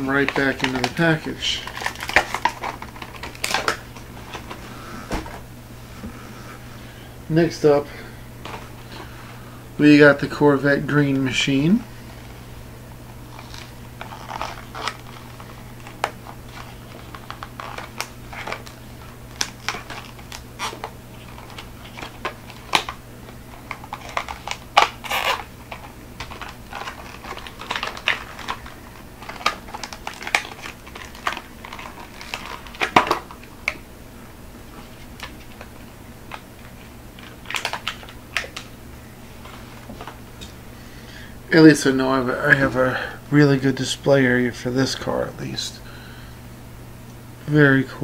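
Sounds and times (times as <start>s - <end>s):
plastic packaging crackling: 0.0s - 5.4s, 13.1s - 33.9s, 34.7s - 40.6s
steady low hum: 0.0s - 48.0s.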